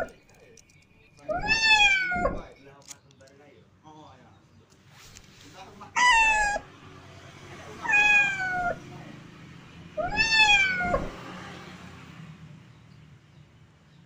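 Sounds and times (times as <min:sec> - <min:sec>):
kitten meowing: 0:01.3 - 0:02.5, 0:05.9 - 0:06.7, 0:07.8 - 0:08.8, 0:10.0 - 0:11.2.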